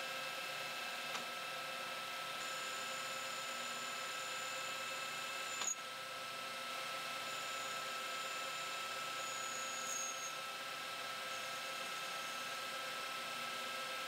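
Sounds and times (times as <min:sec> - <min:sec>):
metal lathe humming: 0:06.4 - 0:13.9.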